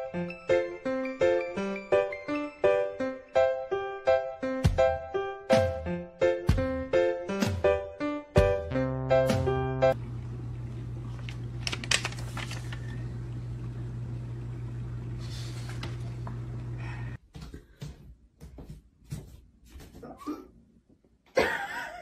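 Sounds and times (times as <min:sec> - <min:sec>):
steady low hum: 0:10.0 - 0:17.2.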